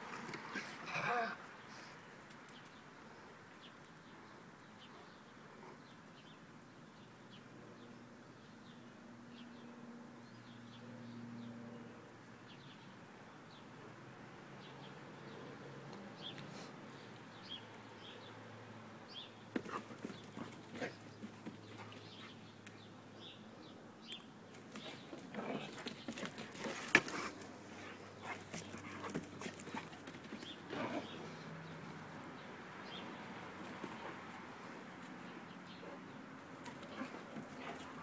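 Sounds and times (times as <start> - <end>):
dogs scuffling: 19.6 - 22.3, 24.5 - 31.1.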